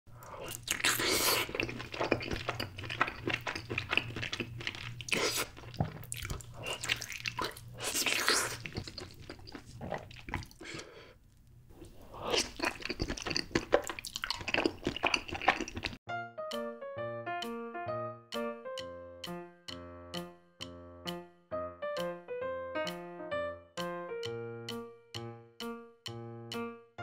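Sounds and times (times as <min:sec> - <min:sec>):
noodles being eaten: 0:00.2 - 0:10.9, 0:11.8 - 0:16.0
wet chewing: 0:00.2 - 0:11.1, 0:11.8 - 0:16.0.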